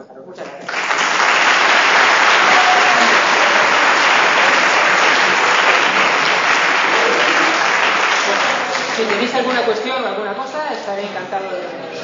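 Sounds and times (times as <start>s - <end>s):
audience applauding: 0.6s - 9.8s.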